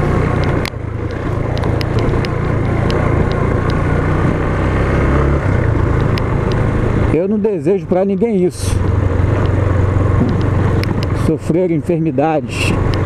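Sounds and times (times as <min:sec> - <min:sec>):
gravel ticks: 0:00.0 - 0:13.0
motorcycle engine running: 0:00.0 - 0:13.0
tyre and wind noise: 0:08.6 - 0:11.4.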